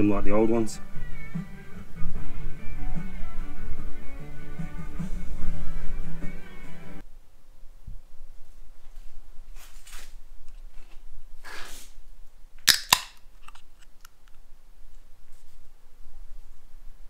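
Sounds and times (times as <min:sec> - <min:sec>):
drink can ring-pull snapping: 0:12.7 - 0:13.6.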